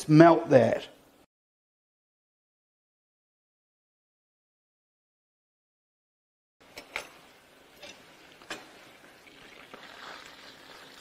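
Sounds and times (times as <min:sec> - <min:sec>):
spatula stirring scrape: 0:06.7 - 0:08.9.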